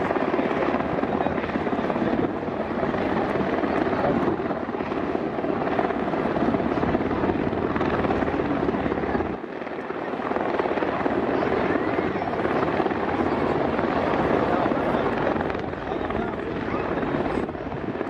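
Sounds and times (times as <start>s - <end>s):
helicopter rotor chop: 0.0s - 18.0s.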